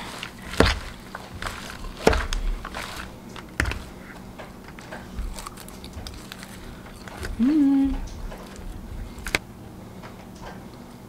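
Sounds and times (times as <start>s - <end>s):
chewing: 0.0s - 9.4s.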